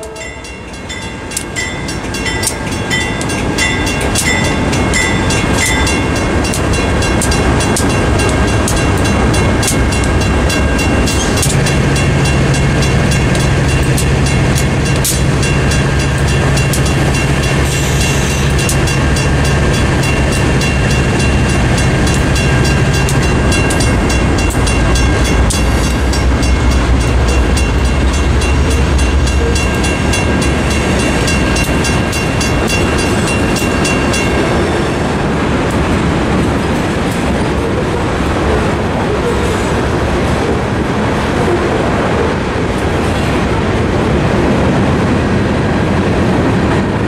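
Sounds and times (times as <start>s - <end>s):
mechanical crossing bell ringing: 0.0s - 11.3s
diesel locomotive engine: 0.0s - 47.0s
rumble of rail traffic: 0.0s - 47.0s.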